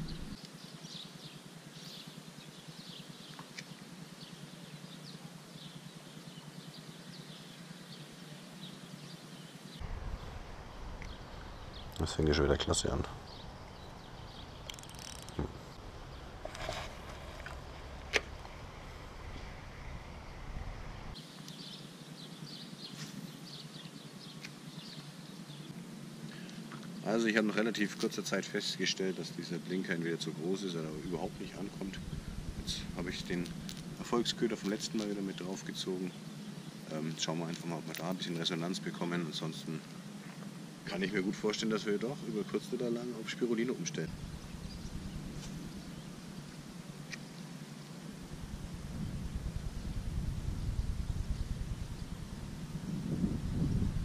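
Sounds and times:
wind on microphone: 0:00.0 - 0:00.4, 0:09.8 - 0:12.0, 0:31.0 - 0:34.0, 0:44.1 - 0:46.2, 0:48.2 - 0:54.0
small birds chirping: 0:00.0 - 0:18.5, 0:19.1 - 0:52.5
steady outdoor hiss: 0:00.0 - 0:54.0.

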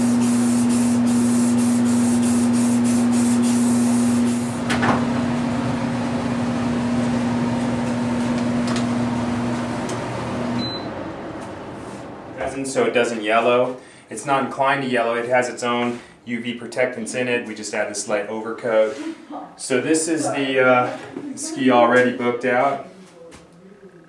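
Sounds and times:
aerosol spray can hissing: 0:00.0 - 0:04.5.

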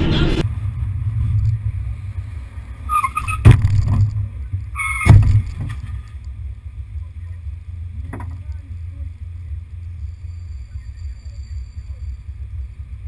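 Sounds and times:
car engine and road rumble: 0:00.0 - 0:13.0
sharp thuds: 0:03.4 - 0:04.3, 0:05.0 - 0:06.0.

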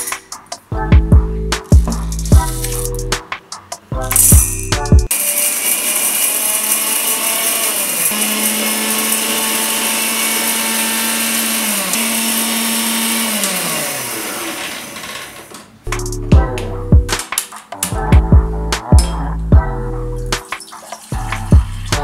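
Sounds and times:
coffee beans clattering into cup: 0:05.1 - 0:11.3
grinder motor running: 0:05.1 - 0:15.5.

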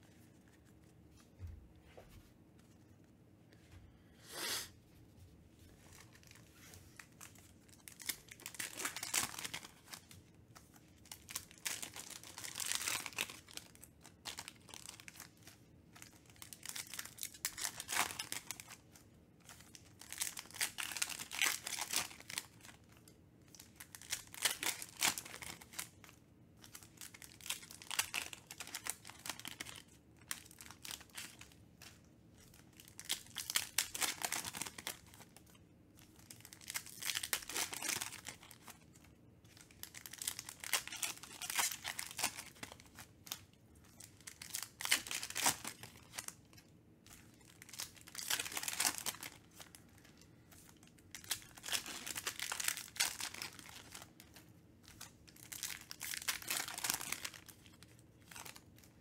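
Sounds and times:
foil packs tearing and crinkling: 0:07.0 - 0:10.0, 0:11.0 - 0:15.3, 0:16.0 - 0:18.8, 0:19.6 - 0:22.8, 0:23.5 - 0:26.0, 0:26.7 - 0:31.5, 0:32.7 - 0:35.3, 0:36.2 - 0:38.8, 0:39.6 - 0:43.4, 0:44.2 - 0:46.3, 0:47.4 - 0:49.8, 0:51.1 - 0:54.1, 0:54.9 - 0:58.6.

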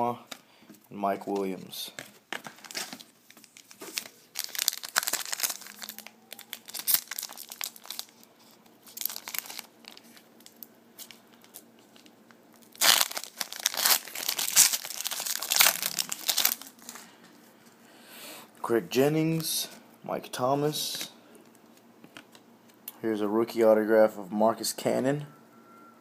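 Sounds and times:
cards rustling: 0:01.2 - 0:17.1
foil wrapper crinkling and tearing: 0:02.4 - 0:17.0.

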